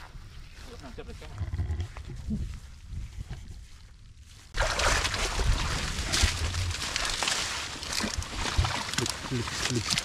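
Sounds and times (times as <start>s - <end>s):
hands splashing in muddy water: 4.6s - 10.0s.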